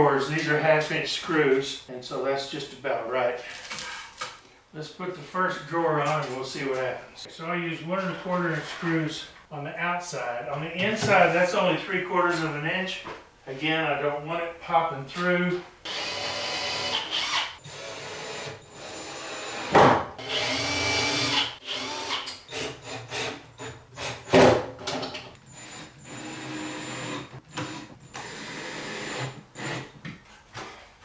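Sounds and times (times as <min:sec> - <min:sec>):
cordless drill running: 0:15.9 - 0:24.2, 0:25.5 - 0:29.9.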